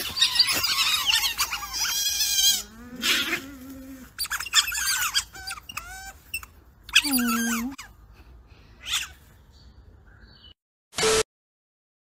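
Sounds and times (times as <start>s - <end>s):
otters squeaking and chirping: 0.0s - 8.0s, 8.8s - 9.3s.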